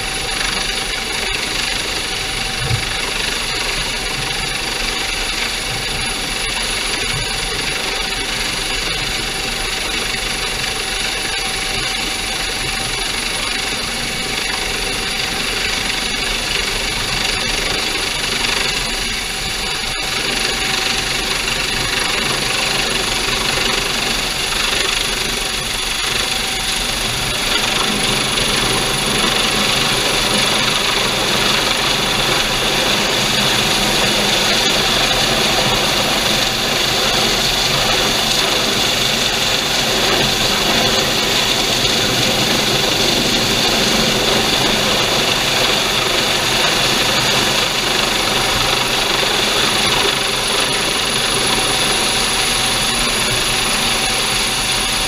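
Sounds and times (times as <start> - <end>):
helicopter turbine whine and rotor: 0.0 - 55.0.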